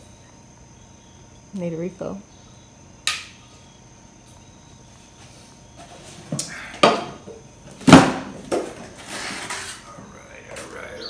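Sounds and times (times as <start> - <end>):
hard objects knocking down: 6.8 - 9.7.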